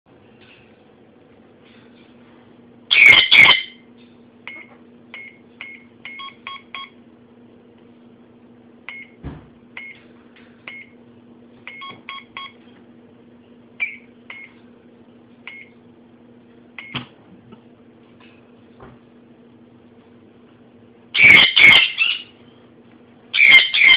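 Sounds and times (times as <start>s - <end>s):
low steady hum: 0.1s - 23.9s
keypad beeping: 4.5s - 7.0s, 11.7s - 12.6s.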